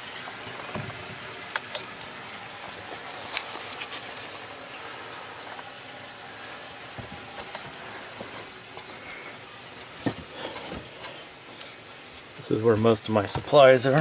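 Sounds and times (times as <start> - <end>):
steady hiss: 0.0 - 14.0
footsteps on wooden stairs: 6.9 - 9.0.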